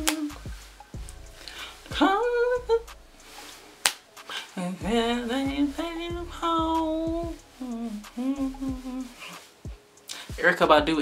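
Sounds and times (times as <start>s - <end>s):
woman singing gliding notes: 0.0s - 0.5s, 4.5s - 9.5s.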